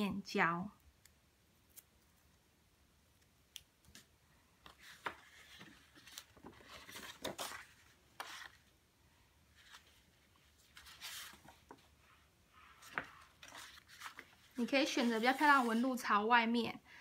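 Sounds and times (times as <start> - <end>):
cardstock crackling and rustling: 4.7 - 8.7, 9.6 - 12.0, 12.8 - 16.0.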